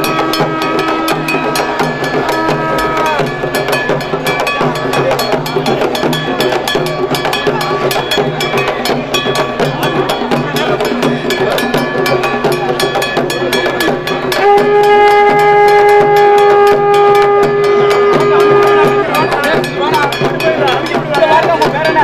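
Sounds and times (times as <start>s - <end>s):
horn held note: 0.0s - 3.4s, 14.3s - 19.4s
fast drumming: 0.0s - 22.0s.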